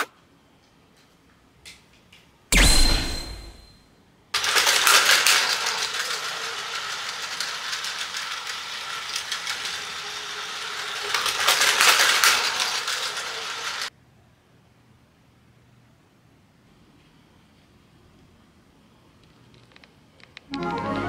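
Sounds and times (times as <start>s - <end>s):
plastic wheels rattling: 4.4s - 13.9s
toy train motor buzzing: 4.4s - 13.9s.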